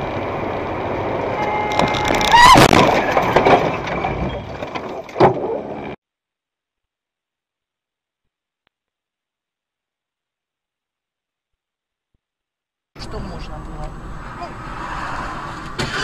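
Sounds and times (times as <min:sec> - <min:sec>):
car driving: 0:00.0 - 0:06.0, 0:13.0 - 0:16.0
loud car crash: 0:01.5 - 0:05.6, 0:14.5 - 0:16.0
clatter of knocks: 0:01.7 - 0:05.6.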